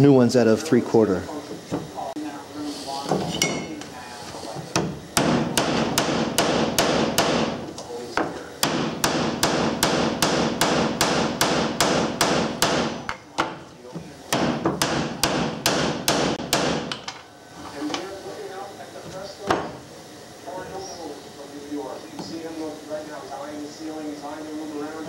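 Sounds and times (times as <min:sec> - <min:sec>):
hammer striking wood: 0:04.7 - 0:07.6, 0:08.2 - 0:13.6, 0:14.3 - 0:17.2.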